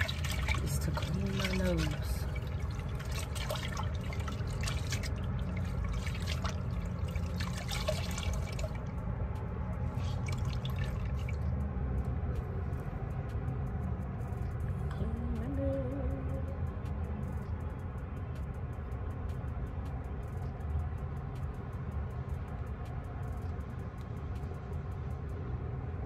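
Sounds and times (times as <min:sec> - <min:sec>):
water splashing in basin: 0:00.0 - 0:08.9, 0:09.9 - 0:11.5
steady low hum: 0:00.0 - 0:26.0.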